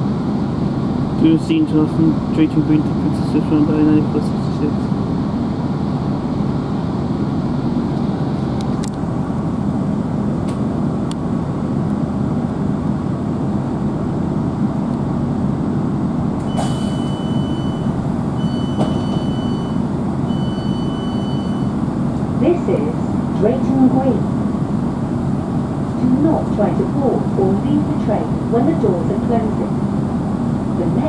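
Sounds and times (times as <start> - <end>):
train diesel engine running: 0.0 - 31.0
long high warning beeps: 16.5 - 21.9.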